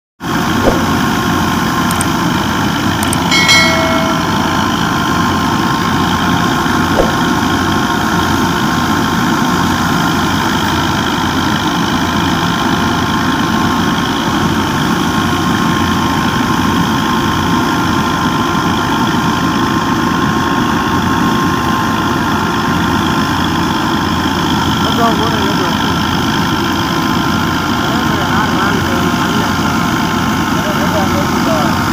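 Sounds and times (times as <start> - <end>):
threshing drum din: 0.6 - 1.7, 3.3 - 5.3, 6.9 - 8.2
tractor diesel engine under load: 4.7 - 31.9.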